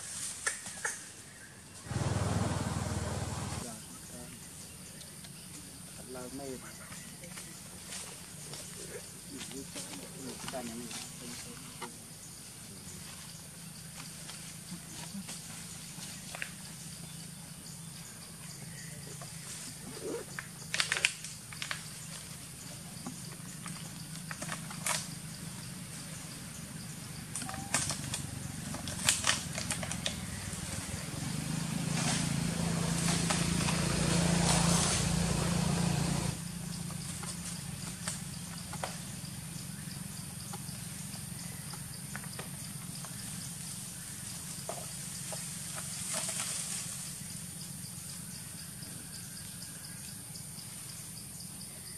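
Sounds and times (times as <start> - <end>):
rustles and snaps in dry leaves: 0.0 - 1.1, 20.3 - 22.5, 23.5 - 25.4, 27.3 - 36.4, 45.2 - 47.2.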